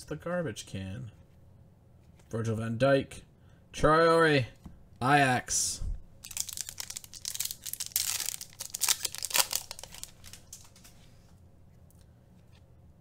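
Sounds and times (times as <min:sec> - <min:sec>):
plastic wrapper tearing and crinkling: 0:06.2 - 0:10.8.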